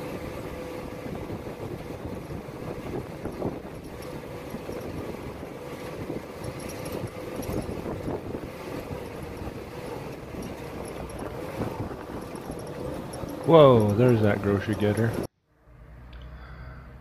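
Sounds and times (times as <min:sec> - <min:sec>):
jeep engine driving: 0:00.0 - 0:17.0
rattling: 0:01.9 - 0:15.3.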